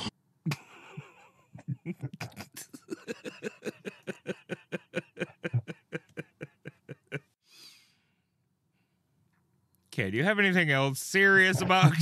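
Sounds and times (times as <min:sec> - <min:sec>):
person laughing in rhythmic bursts: 0:00.0 - 0:07.4.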